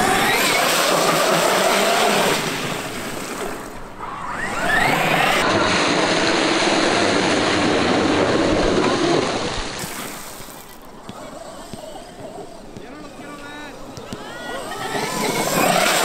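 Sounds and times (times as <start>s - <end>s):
electric motor whining: 3.4s - 9.0s, 10.9s - 16.0s.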